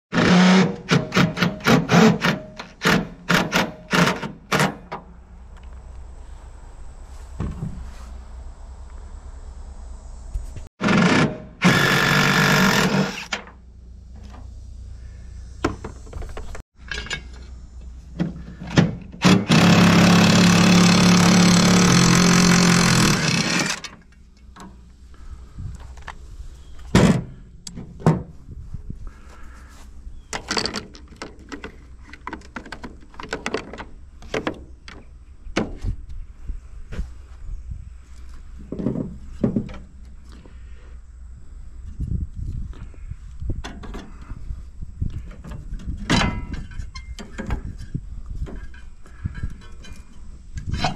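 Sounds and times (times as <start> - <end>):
power tool running: 0.1 - 4.7, 10.8 - 13.4, 19.1 - 23.9
metal parts knocking and clanking: 15.7 - 17.5, 30.3 - 35.0, 45.3 - 47.8.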